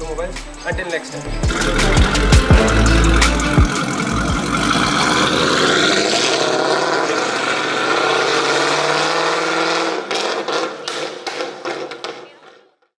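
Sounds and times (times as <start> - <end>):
car engine running: 1.3 - 11.0.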